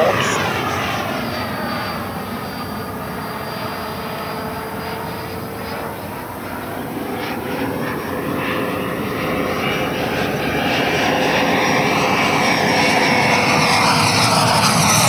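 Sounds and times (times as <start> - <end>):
model jet fan roar and whine: 0.0 - 15.0.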